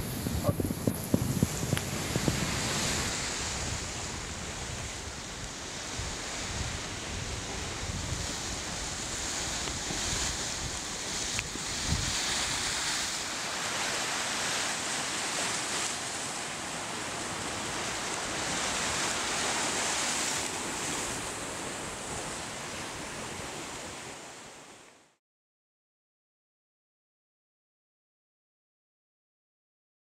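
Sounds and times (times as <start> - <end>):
wind on microphone: 0.0 - 14.6
sea surf washing on shore: 0.0 - 25.1.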